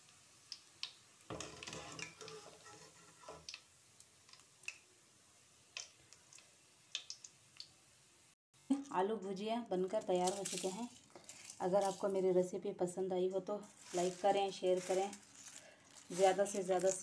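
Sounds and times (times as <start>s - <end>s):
frying oil ticks and pops: 0.0s - 2.8s, 3.4s - 4.9s, 5.5s - 7.8s
skimmer rustling in oil: 9.9s - 12.4s, 13.6s - 17.0s.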